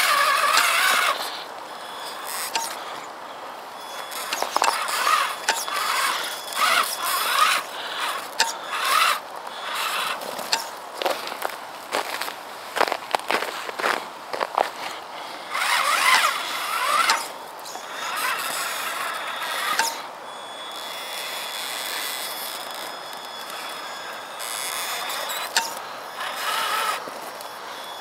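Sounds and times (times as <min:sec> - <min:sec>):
electric motor whining: 0:00.0 - 0:11.1, 0:14.6 - 0:28.0.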